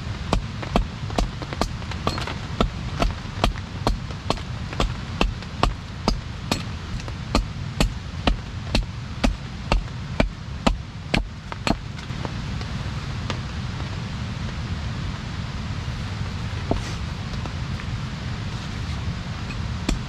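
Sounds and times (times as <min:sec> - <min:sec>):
wood chopping strikes: 0:00.3 - 0:11.8.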